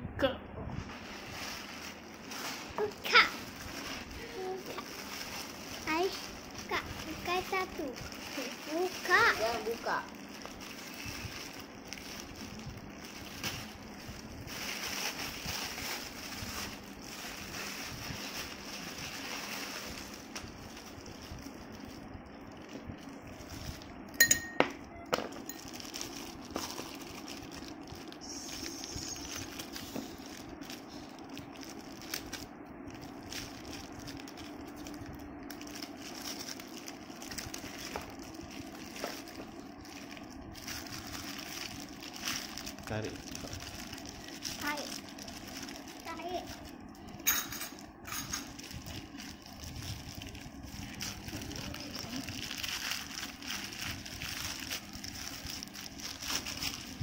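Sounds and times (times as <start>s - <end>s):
plastic bag crinkling: 0.8s - 57.0s
ice cubes clinking: 24.2s - 24.8s.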